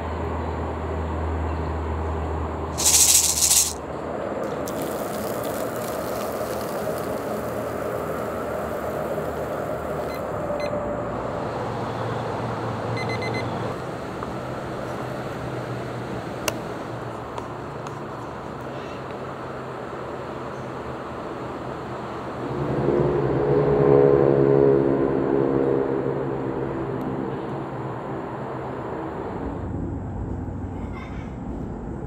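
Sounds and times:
outdoor hum and hiss: 0:00.0 - 0:22.6
kitchen timer beeps: 0:13.0 - 0:13.5.

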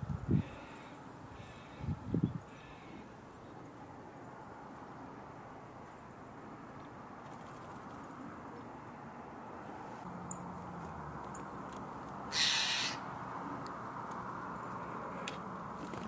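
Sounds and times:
low background noise: 0:00.0 - 0:16.0
small bird wings fluttering: 0:07.2 - 0:08.2.

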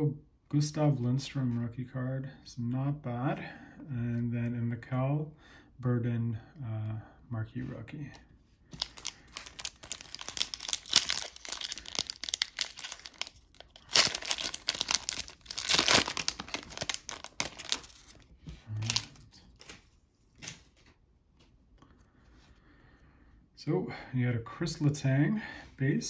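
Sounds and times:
cards rustling and clicking: 0:08.7 - 0:21.5
foil wrapper crinkling and tearing: 0:08.8 - 0:19.8.

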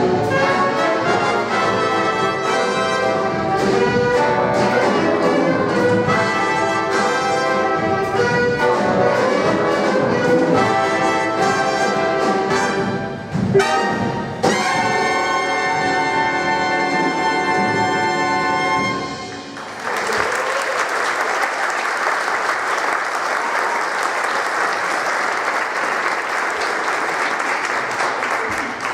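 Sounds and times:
jazz big band playing: 0:00.0 - 0:19.6
audience applause: 0:19.5 - 0:28.9.

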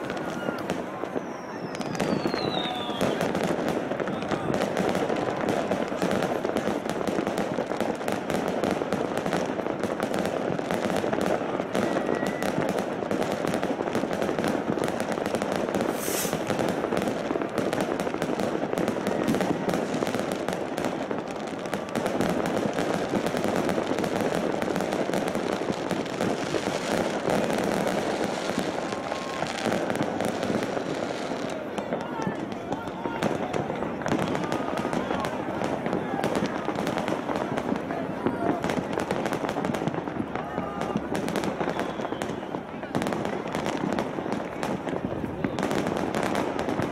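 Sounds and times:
crackling firework stars: 0:00.0 - 0:46.9
firework shell bangs: 0:15.9 - 0:16.5
high hiss: 0:15.9 - 0:16.5.

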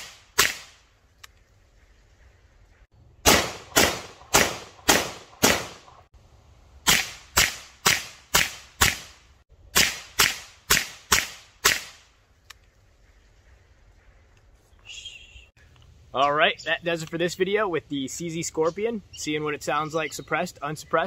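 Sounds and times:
suppressed gunshots: 0:00.0 - 0:00.8, 0:03.2 - 0:06.1, 0:06.8 - 0:12.1.

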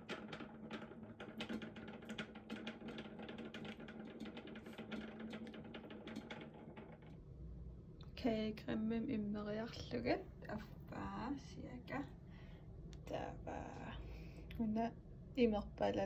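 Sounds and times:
mixer beaters clicking and rattling: 0:00.0 - 0:07.2.

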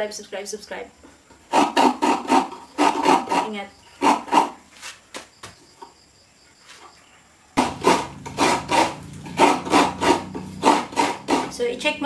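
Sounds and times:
coconut grater scraping: 0:01.5 - 0:04.5, 0:07.6 - 0:11.9.

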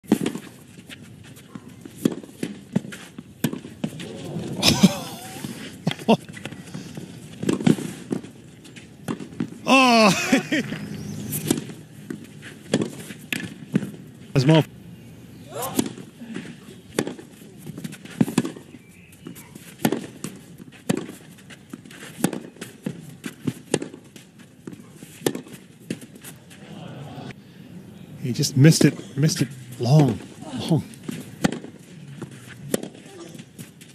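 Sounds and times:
racket hitting tennis ball: 0:00.1 - 0:04.5, 0:07.4 - 0:08.4, 0:10.6 - 0:14.0, 0:15.5 - 0:18.6, 0:19.2 - 0:26.4, 0:31.0 - 0:33.9
player grunting: 0:09.6 - 0:10.7
shoes scuffing on clay: 0:16.4 - 0:26.7.

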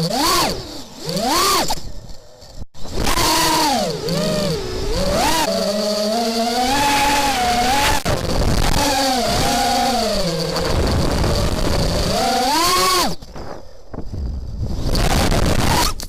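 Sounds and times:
quadcopter motors whining: 0:00.0 - 0:16.0.

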